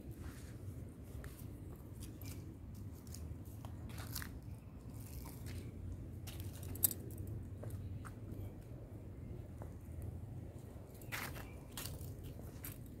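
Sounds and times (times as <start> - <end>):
dry leaves crackling underfoot: 1.2 - 7.2.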